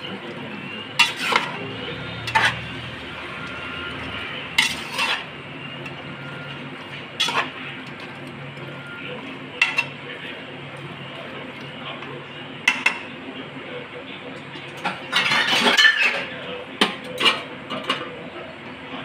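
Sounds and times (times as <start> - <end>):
metal spoon stirring in a pan: 0.0 - 10.0
frying sizzle: 0.0 - 11.5.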